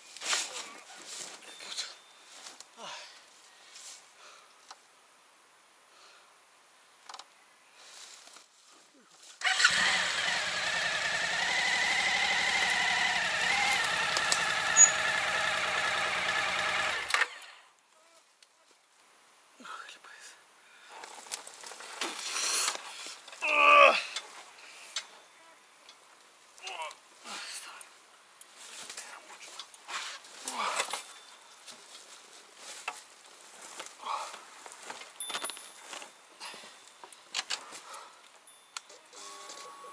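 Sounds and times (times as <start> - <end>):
high engine whine: 9.6 - 17.3
motorcycle engine running: 9.7 - 17.0.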